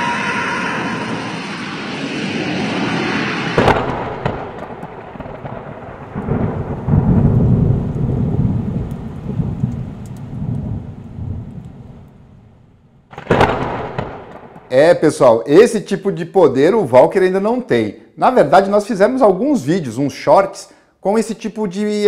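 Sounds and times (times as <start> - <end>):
explosion blast: 0.0 - 9.6, 13.1 - 14.7
heavy low rumble: 0.0 - 11.7.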